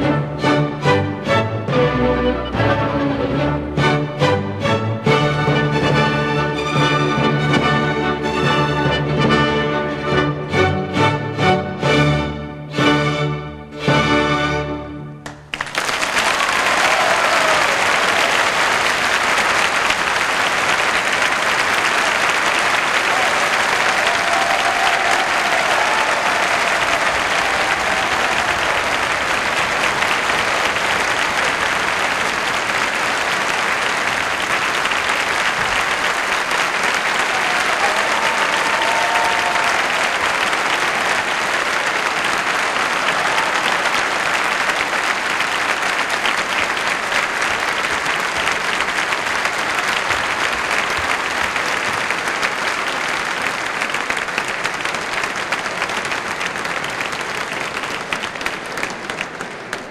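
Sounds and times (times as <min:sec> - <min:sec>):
audience applauding: 0:15.2 - 0:59.9.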